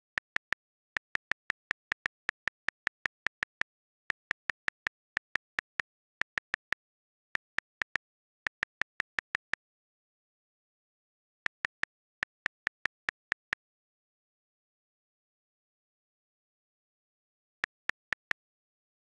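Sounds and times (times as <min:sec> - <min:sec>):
on-screen keyboard clicks: 0:00.0 - 0:09.6, 0:11.5 - 0:13.6, 0:17.6 - 0:18.4.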